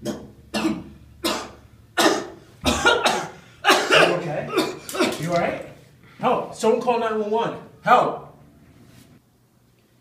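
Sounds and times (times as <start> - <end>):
man coughing harshly: 0.1 - 5.3.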